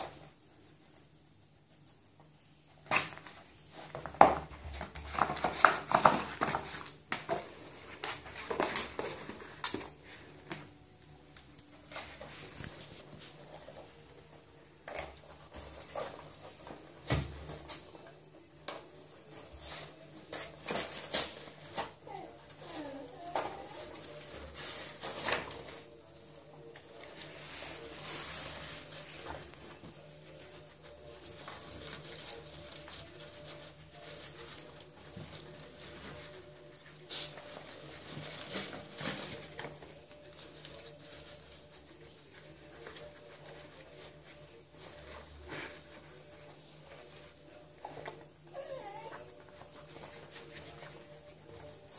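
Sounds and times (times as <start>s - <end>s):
cardboard and paper rustling: 2.7s - 51.9s.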